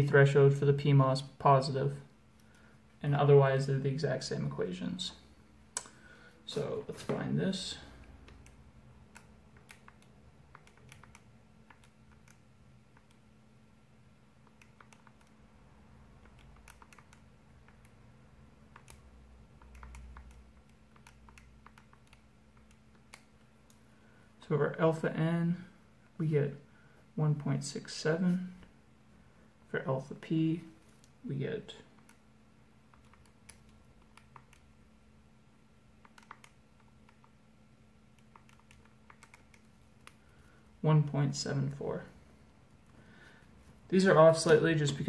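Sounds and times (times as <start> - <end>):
low steady hum: 0.0 - 45.0
faint key-press clicks: 8.0 - 13.2, 18.7 - 23.8
keys clicking: 16.2 - 18.0.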